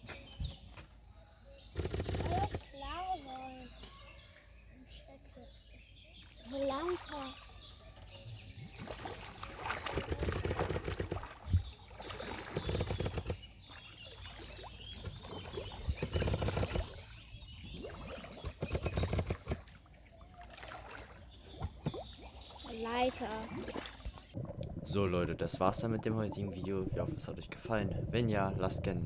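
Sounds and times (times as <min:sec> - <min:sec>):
water splashing and bubbling: 0:06.1 - 0:29.0.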